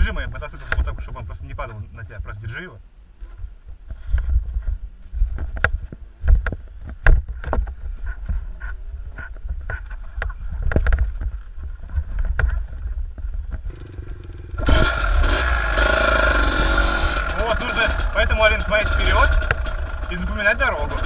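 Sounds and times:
dirt bike knocks and clatter: 0:05.3 - 0:14.0, 0:14.6 - 0:21.0
motorcycle engines running: 0:07.7 - 0:21.0.

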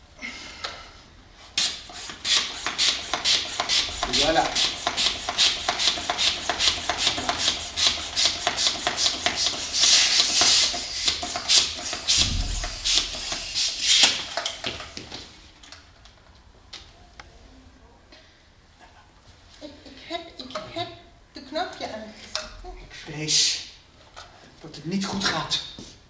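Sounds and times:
hand balloon pump rasping: 0:01.6 - 0:14.8.

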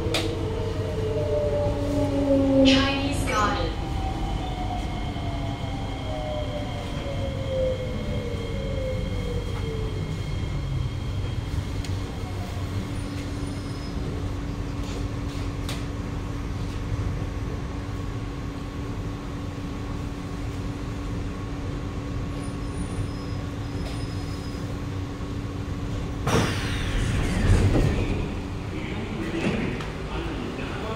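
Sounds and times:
train running rumble: 0:07.8 - 0:30.9
train doors opening: 0:25.8 - 0:30.5
hum: 0:26.2 - 0:29.2.

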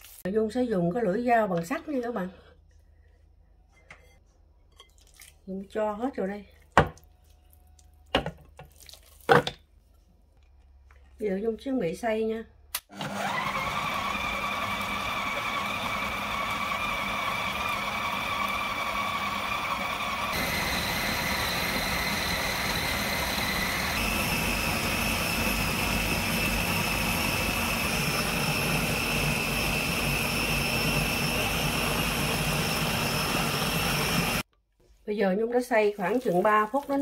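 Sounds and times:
food processor motor whine: 0:12.9 - 0:34.5.

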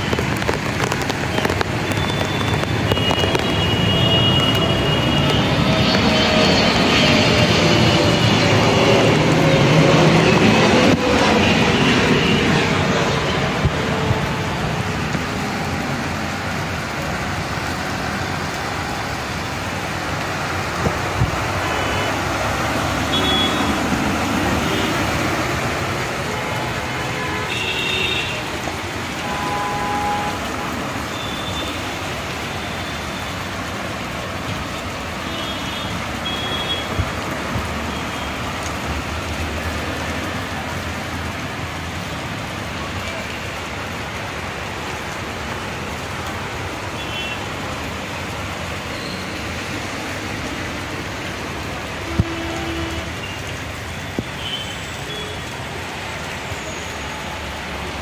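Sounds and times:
vehicle engines running: 0:00.0 - 0:27.2
heavy rain: 0:00.0 - 0:58.0.

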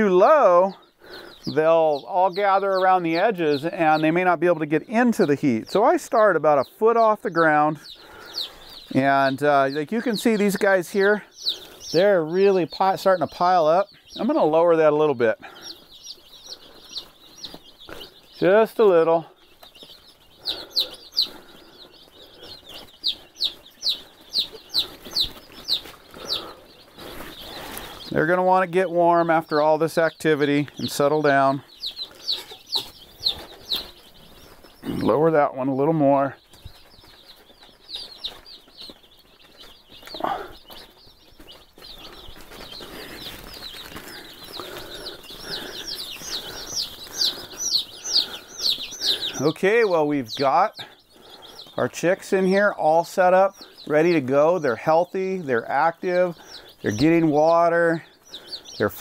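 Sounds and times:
chicks peeping: 0:00.0 - 0:59.0.

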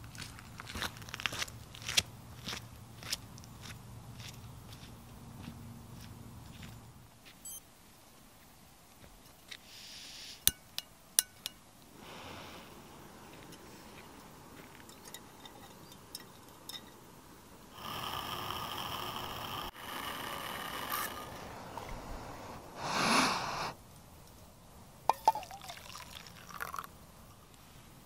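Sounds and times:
metallic clinks of cookware: 0:14.9 - 0:17.0
water pouring into metal pot: 0:25.1 - 0:26.9.

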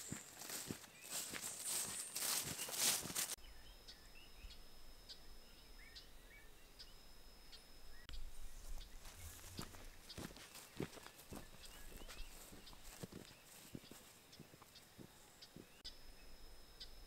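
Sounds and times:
footsteps in rubber boots on grass: 0:00.0 - 0:03.4, 0:08.1 - 0:15.9.

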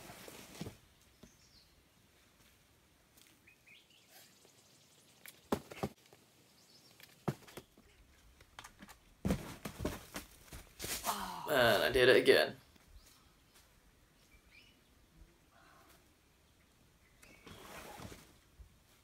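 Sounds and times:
faint bird chirps: 0:03.4 - 0:05.5, 0:12.6 - 0:18.0
body thumping onto pad: 0:09.2 - 0:10.3.

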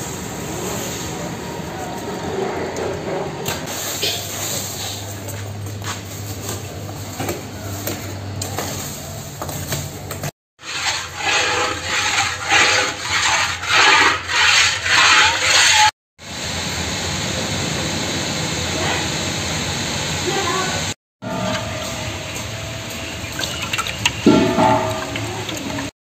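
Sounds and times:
spatula scraping iron pan: 0:10.6 - 0:15.9
mixture bubbling: 0:23.2 - 0:25.9.

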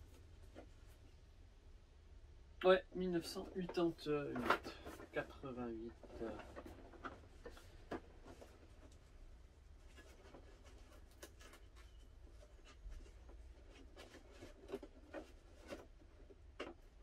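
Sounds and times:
scraping on cardboard: 0:09.8 - 0:16.8.

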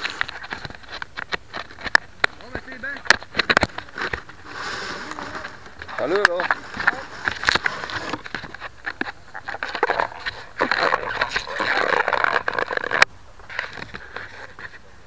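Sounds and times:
hands rubbing airframe: 0:03.4 - 0:14.8.

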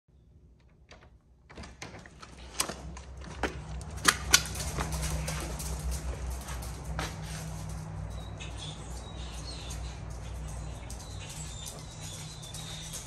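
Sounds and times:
outdoor ambience: 0:00.1 - 0:13.0
sharp clicks and knocks: 0:00.6 - 0:06.3.

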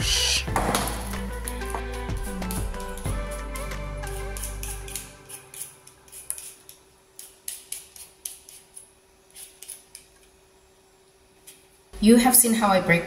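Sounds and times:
background music: 0:00.0 - 0:05.9
vegetable peeler scraping potato: 0:03.0 - 0:10.2.

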